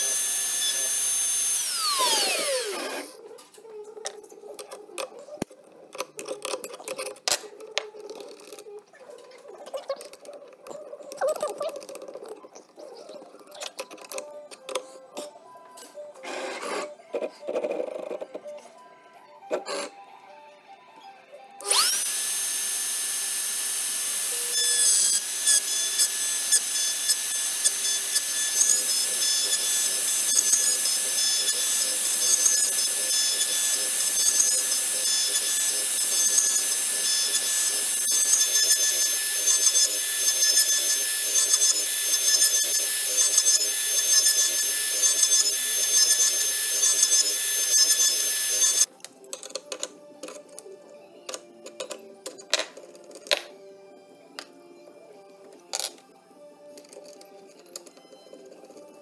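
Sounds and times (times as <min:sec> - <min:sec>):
bit cutting wood: 0:00.0 - 0:03.2, 0:21.6 - 0:48.9
router spindle whine: 0:00.0 - 0:03.2, 0:21.6 - 0:48.9.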